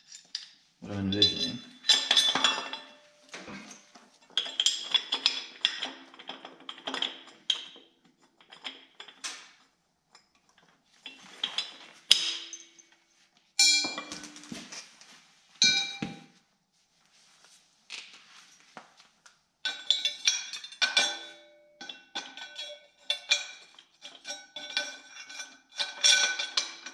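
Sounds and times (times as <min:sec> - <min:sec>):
steel pieces clanking and scraping: 0:00.0 - 0:09.6, 0:10.2 - 0:12.9, 0:19.6 - 0:26.9.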